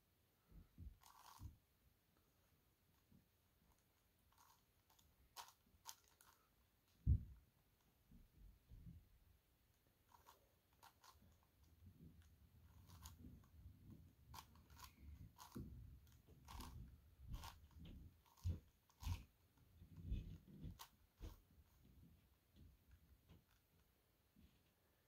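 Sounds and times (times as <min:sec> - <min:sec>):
plastic puzzle clicking: 0:03.7 - 0:06.4, 0:14.3 - 0:16.8.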